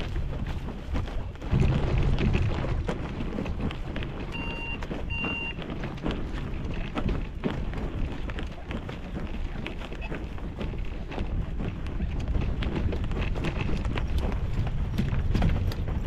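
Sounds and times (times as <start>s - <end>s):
wheels rumbling over rough grass: 0.0s - 16.0s
short electronic beeps: 4.3s - 5.6s.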